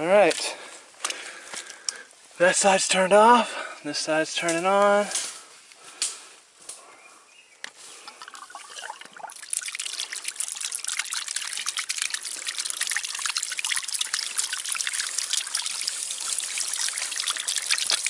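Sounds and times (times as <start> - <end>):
water splashing onto rocks: 8.3 - 18.0.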